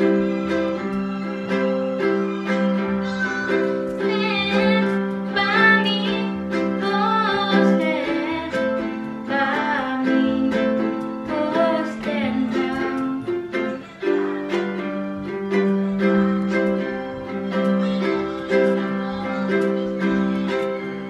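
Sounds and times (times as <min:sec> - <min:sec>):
ukulele strummed in chords: 0:00.0 - 0:21.0
woman singing: 0:04.0 - 0:13.5.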